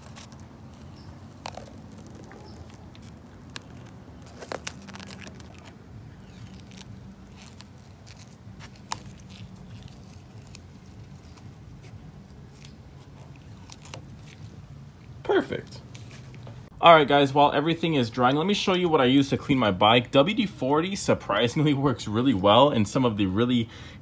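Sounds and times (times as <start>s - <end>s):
masking tape peeling: 0.0s - 15.2s
low steady hum: 0.0s - 24.0s.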